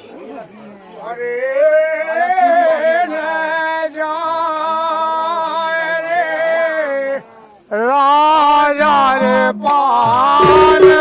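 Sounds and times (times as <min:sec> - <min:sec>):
man singing long high notes: 0:08.4 - 0:11.0.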